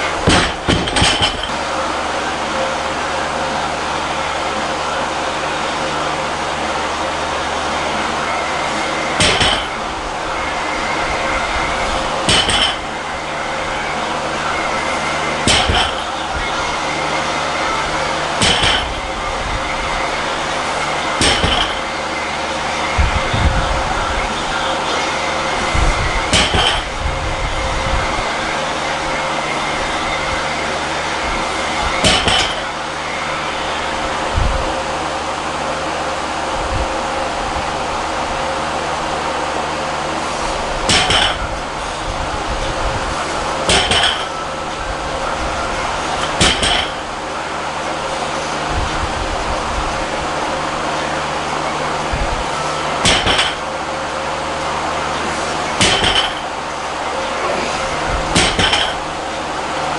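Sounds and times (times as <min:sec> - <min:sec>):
barbell clanking on floor: 0:00.3 - 0:01.5, 0:12.3 - 0:12.8, 0:21.2 - 0:21.8, 0:40.9 - 0:41.4, 0:46.4 - 0:47.0, 0:58.3 - 0:59.0.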